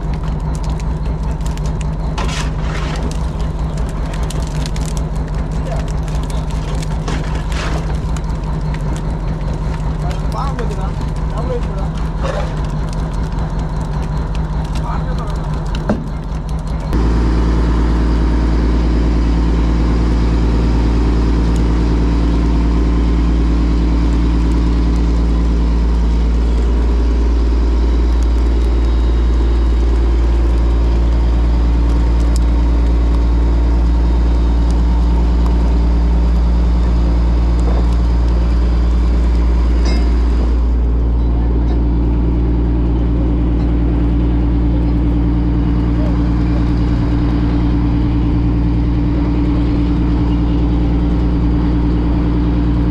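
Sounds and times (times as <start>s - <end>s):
engine running steadily: 0.0s - 52.9s
heavy low rumble: 0.0s - 52.9s.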